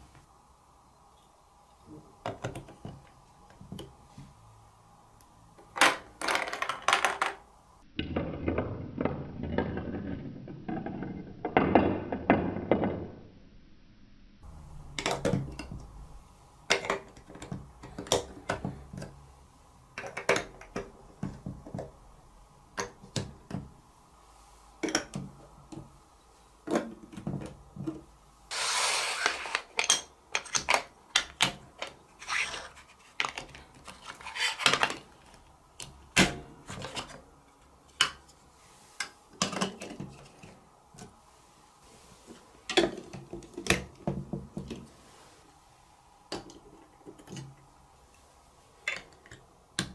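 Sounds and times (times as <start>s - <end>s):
plastic bricks clicking together: 5.9s - 7.4s
scraping rustle: 28.5s - 29.8s, 32.1s - 35.3s.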